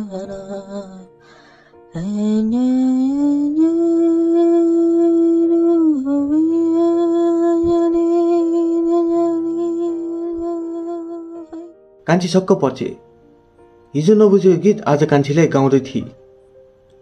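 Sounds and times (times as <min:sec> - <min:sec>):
woman humming: 0:00.0 - 0:01.2, 0:01.9 - 0:11.8.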